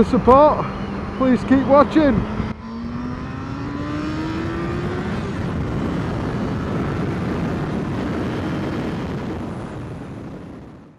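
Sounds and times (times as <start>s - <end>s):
wind rushing over microphone: 0.0s - 10.9s
motorcycle engine revving up: 0.7s - 9.3s.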